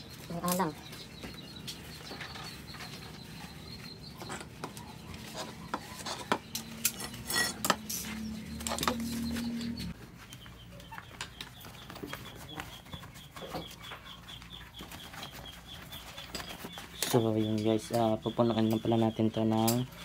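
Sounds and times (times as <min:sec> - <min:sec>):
sharp clicks and clinks of tools: 0:06.5 - 0:09.1.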